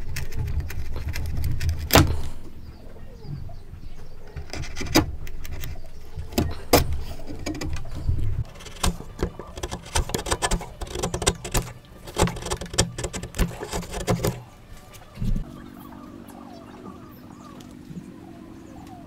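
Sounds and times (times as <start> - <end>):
chisel cutting wood: 6.3 - 14.4.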